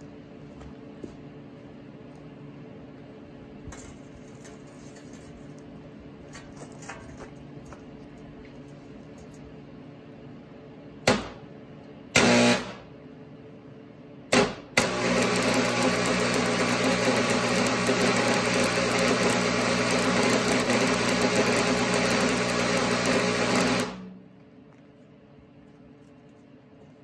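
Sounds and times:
steady low hum: 0:00.0 - 0:14.8, 0:22.1 - 0:27.0
welding arc crackling: 0:14.8 - 0:24.0.

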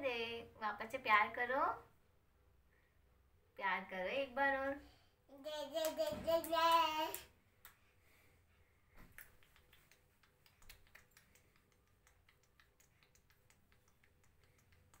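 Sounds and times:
child clapping hands: 0:05.7 - 0:07.8, 0:09.1 - 0:15.0.

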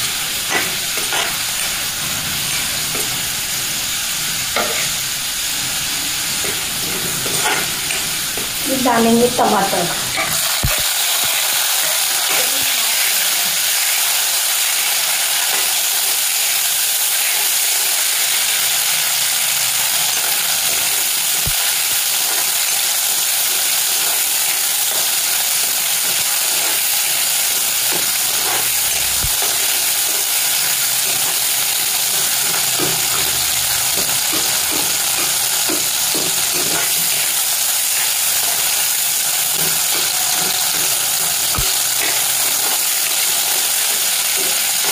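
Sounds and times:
onions and tomatoes sizzling in oil: 0:00.0 - 0:44.9
metal spoon scraping pan: 0:04.6 - 0:05.0, 0:06.1 - 0:08.6.

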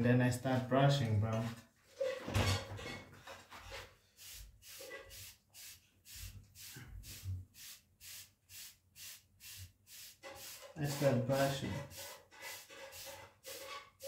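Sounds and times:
hairbrush swishing through hair: 0:04.2 - 0:13.8.

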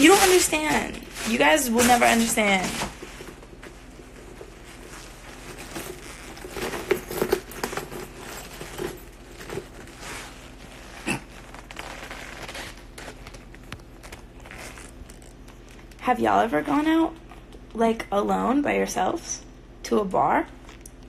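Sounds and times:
fabric rustling: 0:00.0 - 0:15.8.

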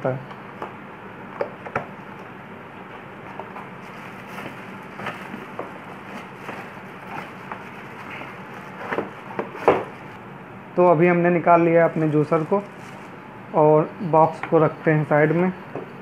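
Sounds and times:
plastic bag crinkling: 0:03.8 - 0:08.8, 0:11.9 - 0:13.2
cardboard box flaps rustling: 0:03.8 - 0:10.0.

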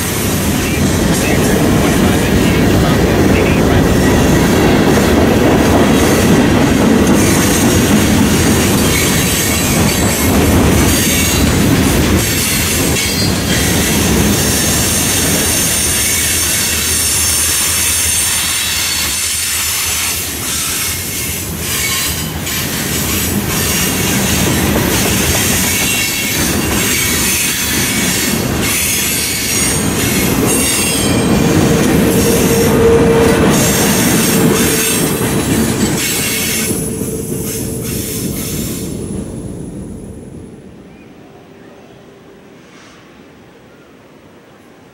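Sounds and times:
steel wheels rumbling on rail: 0:00.0 - 0:41.0
low steady squeal tone: 0:31.0 - 0:41.0.

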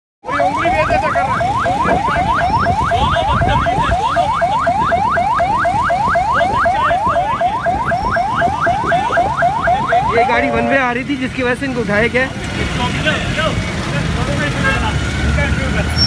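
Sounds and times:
street traffic rumble: 0:00.2 - 0:16.0
alarm siren whooping: 0:00.3 - 0:11.2.

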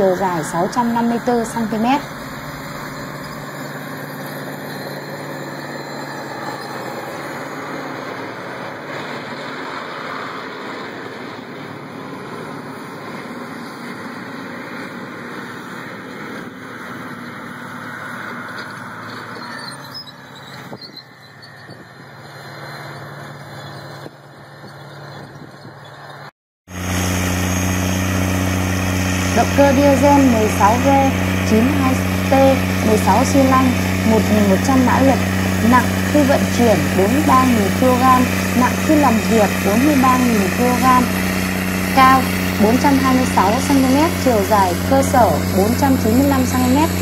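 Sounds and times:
tractor diesel engine running: 0:00.0 - 0:20.6, 0:26.7 - 0:47.0
deep tractor engine: 0:00.0 - 0:47.0.

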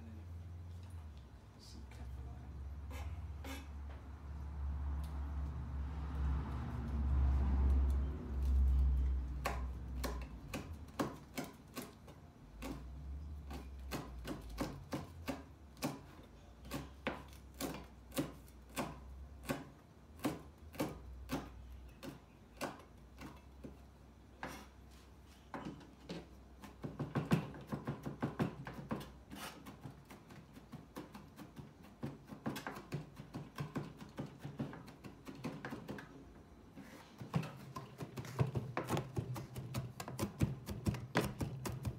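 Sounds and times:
knife chopping on plastic board: 0:09.4 - 0:12.9, 0:13.5 - 0:23.8, 0:25.5 - 0:36.1, 0:37.2 - 0:41.9.

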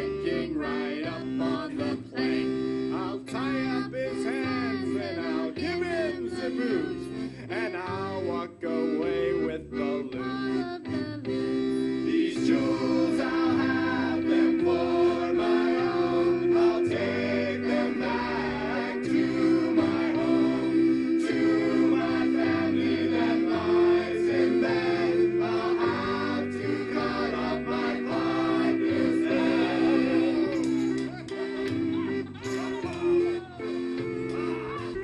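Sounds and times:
group singing: 0:00.0 - 0:10.6, 0:11.8 - 0:31.2
repeating bass line: 0:12.0 - 0:32.6
plucked guitar: 0:24.5 - 0:35.0.

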